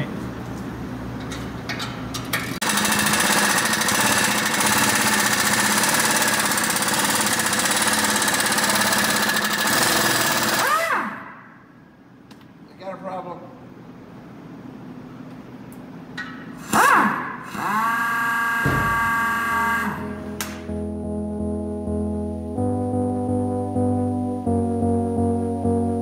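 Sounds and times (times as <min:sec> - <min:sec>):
impact wrench hammering: 0:02.6 - 0:11.2, 0:18.6 - 0:20.6.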